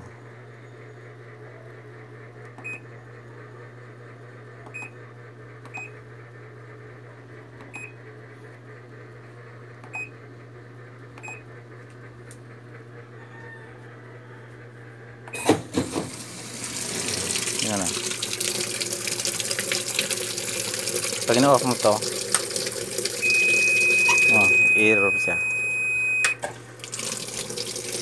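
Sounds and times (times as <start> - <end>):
washing machine low hum: 0.0 - 28.0
short high beeps: 23.2 - 26.4.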